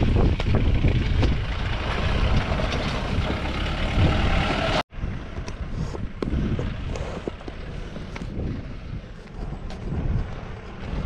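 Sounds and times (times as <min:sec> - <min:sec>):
vehicle knocks and rattles: 0:00.0 - 0:04.8
off-road vehicle engine under load: 0:00.0 - 0:11.0.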